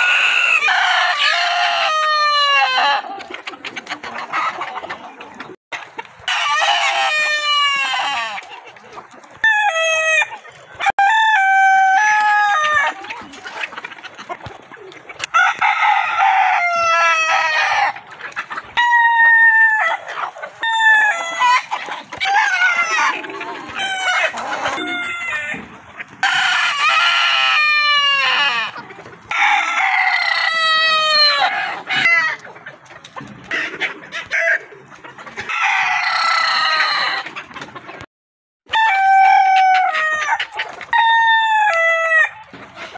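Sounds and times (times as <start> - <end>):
roosters crowing: 0.0 - 3.2, 6.2 - 8.6, 9.4 - 13.2, 15.2 - 18.1, 18.8 - 32.4, 35.3 - 37.4, 38.7 - 42.9
hens clucking: 0.0 - 38.1, 38.7 - 42.9.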